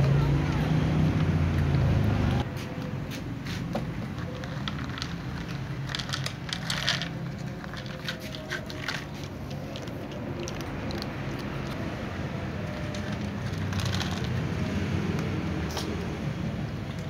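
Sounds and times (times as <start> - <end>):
cat crunching dry kibble: 4.1 - 11.8, 12.9 - 16.0.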